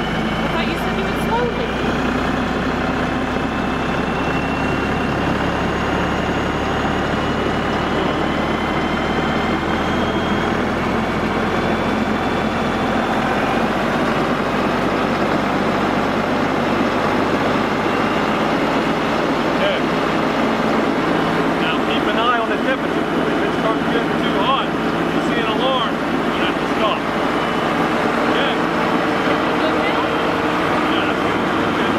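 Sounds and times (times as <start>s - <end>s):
diesel tractor engine running: 0.0s - 31.9s
rotary cutter high whine: 0.0s - 31.9s.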